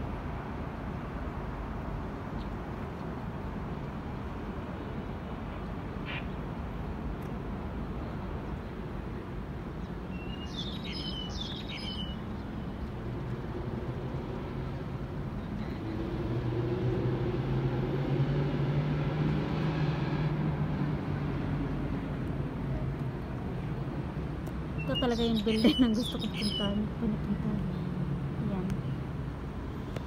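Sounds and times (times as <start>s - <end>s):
city traffic noise: 0.0s - 30.0s
low droning vehicle hum: 1.3s - 30.0s
bird chirping: 9.8s - 12.9s, 24.8s - 26.9s.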